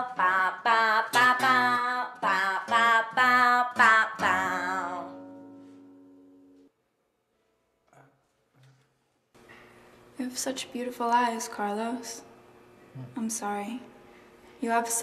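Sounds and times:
woman singing: 0:00.0 - 0:05.6
acoustic guitar strumming: 0:01.0 - 0:06.7.

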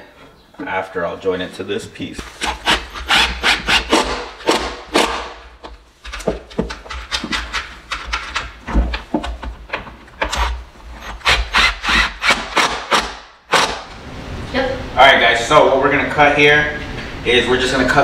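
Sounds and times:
cordless drill driving screws: 0:02.4 - 0:04.2, 0:10.2 - 0:13.8.

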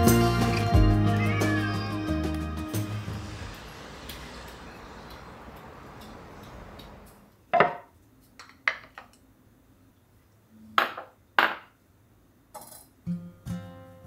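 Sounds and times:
acoustic guitar music: 0:00.0 - 0:03.6, 0:13.0 - 0:14.0
steady hiss: 0:02.4 - 0:07.3.

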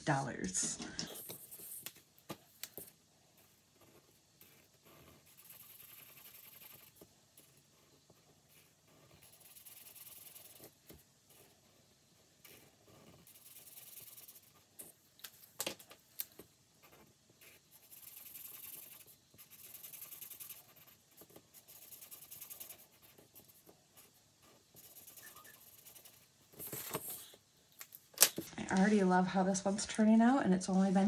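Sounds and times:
pen scratching on paper: 0:01.1 - 0:02.0, 0:02.7 - 0:15.0, 0:16.8 - 0:27.4.

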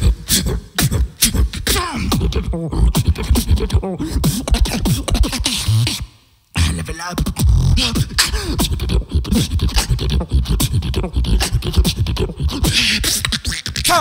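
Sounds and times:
beatboxing into a microphone: 0:00.0 - 0:14.0.

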